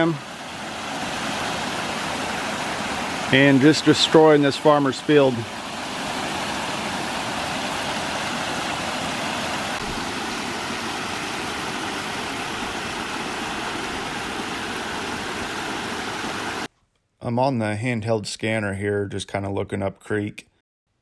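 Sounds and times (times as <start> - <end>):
creek water rushing: 0.0 - 16.7.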